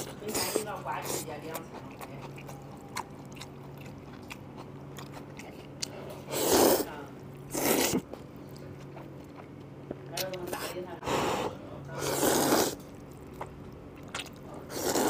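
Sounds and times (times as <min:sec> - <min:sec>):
quiet chewing with clicks: 0:00.0 - 0:06.3, 0:07.2 - 0:10.8, 0:12.7 - 0:15.0
man slurping noodles: 0:07.5 - 0:08.0, 0:11.1 - 0:12.8, 0:14.7 - 0:15.0.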